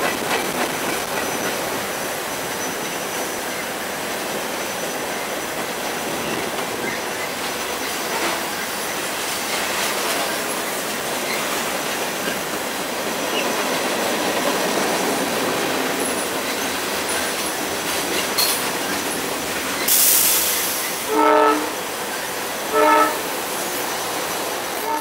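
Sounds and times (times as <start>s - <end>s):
train wheels clattering on rail: 0.0s - 25.0s
air hissing: 19.8s - 21.1s
train horn blasts: 21.0s - 21.8s, 22.7s - 23.3s, 24.8s - 25.0s.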